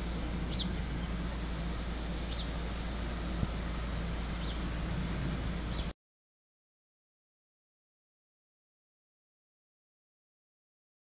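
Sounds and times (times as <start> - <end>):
low outdoor rumble: 0.0 - 5.9.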